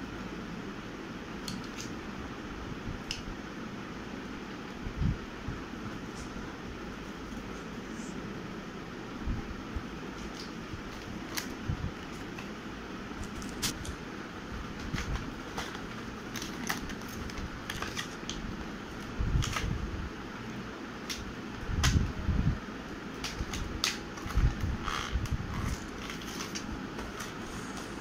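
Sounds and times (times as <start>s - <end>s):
room fan humming: 0.0s - 28.0s
cardboard rustling and clicking: 14.6s - 19.8s, 23.2s - 28.0s.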